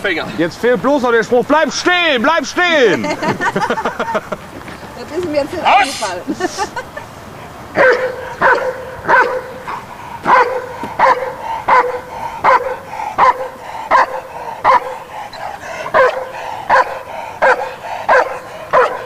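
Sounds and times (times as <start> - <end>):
dog barking: 7.8 - 19.0.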